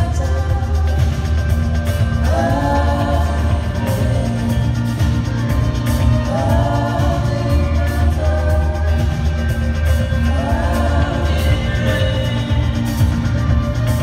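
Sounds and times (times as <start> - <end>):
live band music: 0.0 - 14.0
man singing: 2.0 - 5.3, 6.1 - 13.3.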